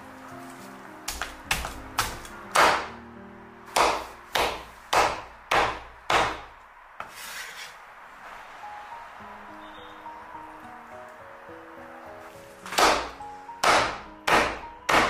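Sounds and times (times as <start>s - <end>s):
cleaver chopping chicken on wood: 1.1s - 2.9s, 3.7s - 6.5s, 12.7s - 15.0s.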